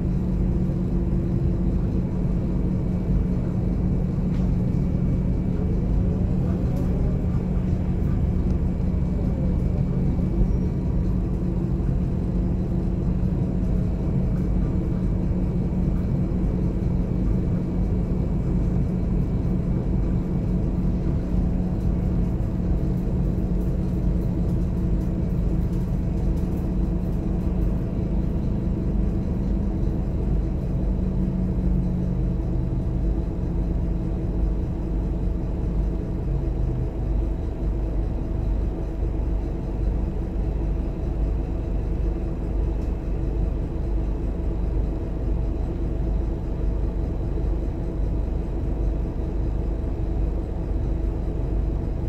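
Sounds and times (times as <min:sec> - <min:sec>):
diesel engine drone: 0:00.0 - 0:52.0
low drivetrain rumble: 0:00.0 - 0:52.0.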